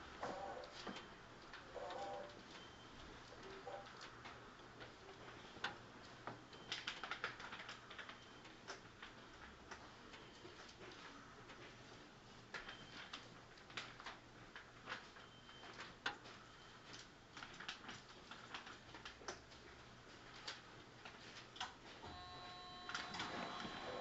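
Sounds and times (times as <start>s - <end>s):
steady electronic tones: 22.0s - 24.0s.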